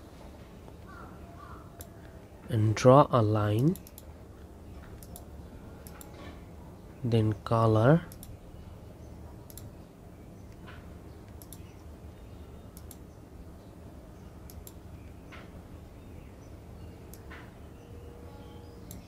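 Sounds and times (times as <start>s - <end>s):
low steady background hum: 0.0s - 19.0s
computer mouse clicking: 3.7s - 4.1s, 4.9s - 6.1s, 8.1s - 8.4s, 9.5s - 9.7s, 11.2s - 11.7s, 12.8s - 13.0s, 14.5s - 14.8s.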